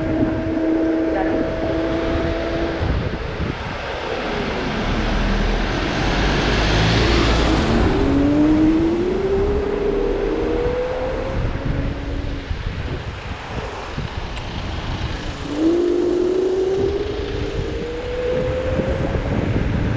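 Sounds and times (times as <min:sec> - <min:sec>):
street traffic passing: 0:00.0 - 0:19.9
motor whine rising in pitch: 0:04.0 - 0:12.6, 0:15.4 - 0:19.7.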